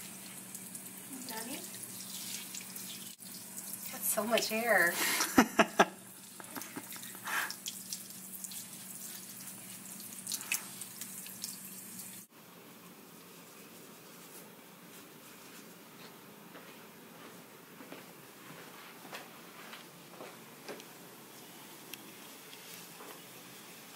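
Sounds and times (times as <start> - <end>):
faucet water splashing into basin: 0.0 - 4.6, 6.1 - 12.3
faint steady hiss: 0.0 - 23.9.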